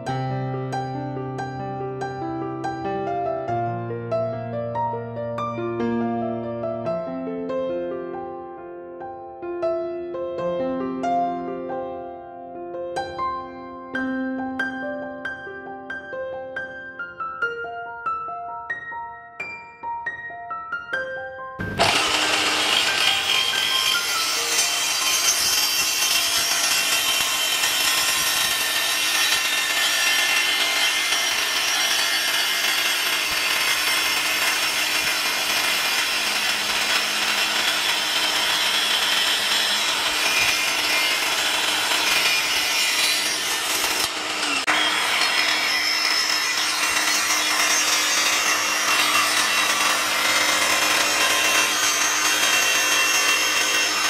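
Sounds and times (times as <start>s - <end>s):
miter saw cutting wood: 21.6s - 54.0s.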